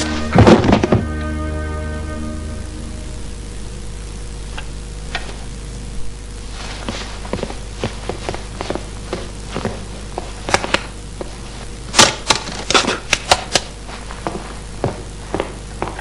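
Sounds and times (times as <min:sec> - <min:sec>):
footsteps on wooden floor: 0:00.0 - 0:01.2, 0:06.8 - 0:11.4, 0:14.0 - 0:16.0
steady low hum: 0:00.0 - 0:16.0.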